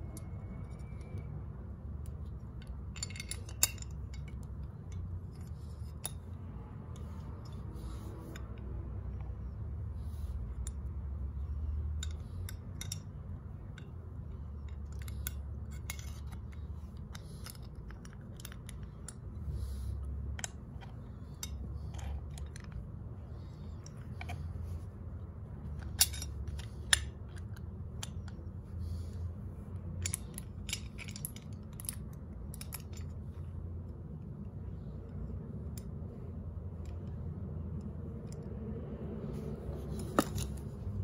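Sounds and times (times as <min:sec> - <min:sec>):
low steady rumble: 0:00.0 - 0:41.0
small metal parts clinking: 0:00.0 - 0:41.0.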